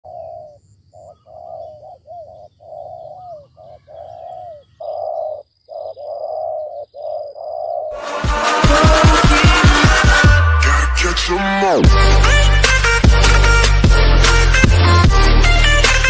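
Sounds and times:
doves cooing: 0:00.0 - 0:08.0.

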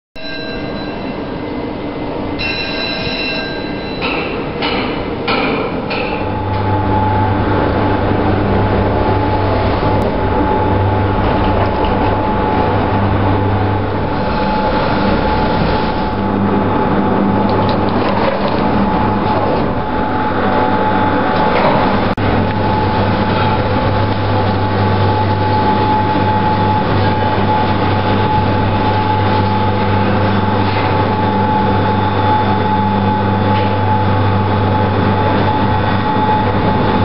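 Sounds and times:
gondola mechanical rumble and hum: 0:00.2 - 0:37.0
mechanical clacks: 0:08.6 - 0:16.5.

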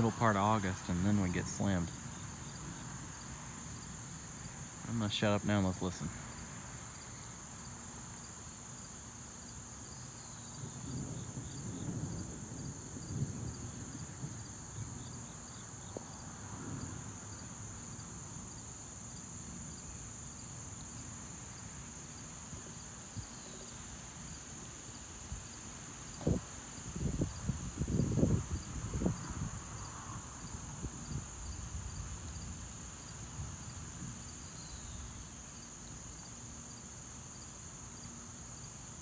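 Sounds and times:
high-pitched insect chorus: 0:00.0 - 0:39.0
distant thunder rumble: 0:10.6 - 0:17.5.

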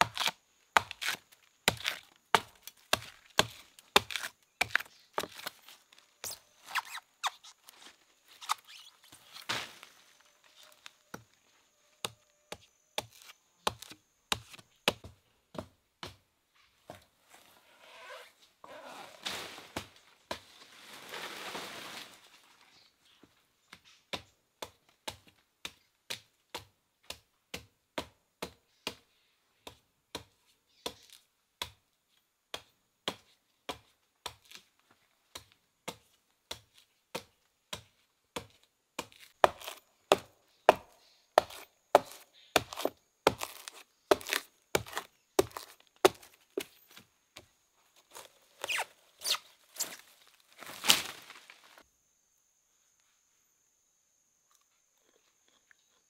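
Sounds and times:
wood being chopped: 0:00.0 - 0:05.5, 0:38.4 - 0:46.3
rustling: 0:17.2 - 0:22.7.

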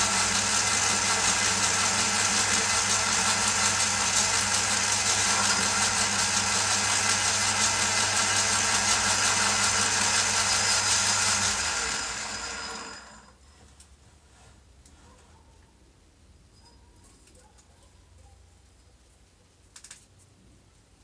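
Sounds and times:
metal lathe running: 0:00.0 - 0:13.3
lathe spinning down: 0:00.0 - 0:13.4.

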